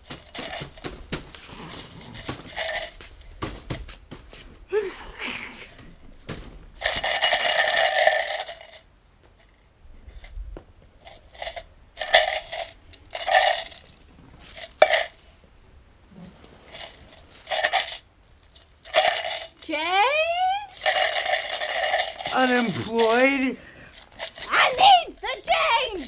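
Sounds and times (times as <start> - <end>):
coins rattling in shaken cup: 6.8 - 8.8, 11.2 - 13.9, 16.8 - 18.0, 18.9 - 19.8, 20.7 - 26.0.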